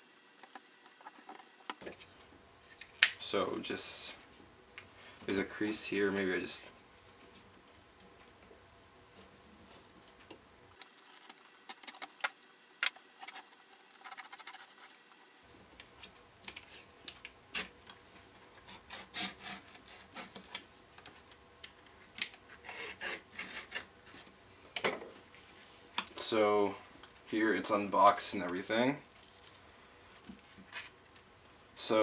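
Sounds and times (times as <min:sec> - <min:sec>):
blade sawing through cardboard: 0:18.7 - 0:20.4, 0:22.6 - 0:23.8.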